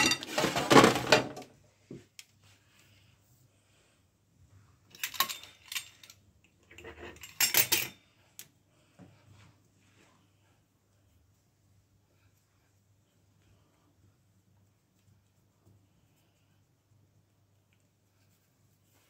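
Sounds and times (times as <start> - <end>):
utensils clattering on stone: 0.0 - 1.3, 4.9 - 8.0.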